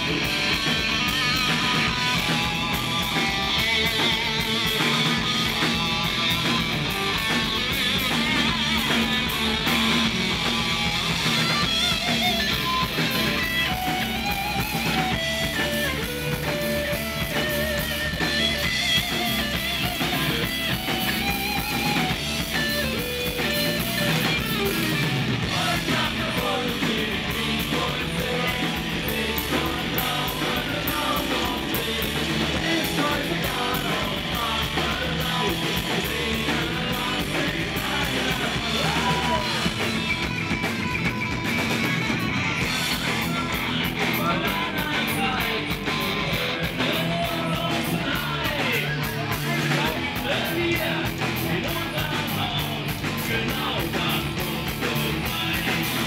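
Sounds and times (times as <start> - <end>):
drums: 0.0 - 56.0
electric bass: 0.0 - 56.0
electric guitar: 0.0 - 56.0
person singing: 25.4 - 40.0, 43.1 - 56.0.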